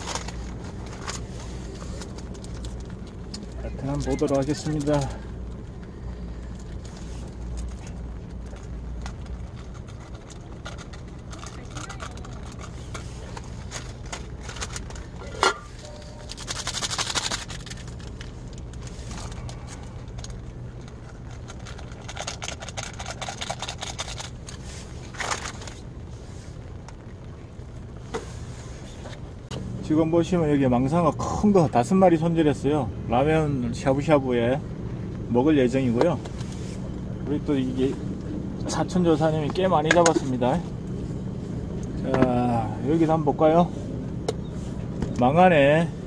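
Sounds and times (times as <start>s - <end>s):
steady low hum: 0.0s - 46.0s
seasoning packet crinkling: 8.4s - 15.1s, 16.0s - 24.6s
powder shaken into pot: 16.2s - 18.1s.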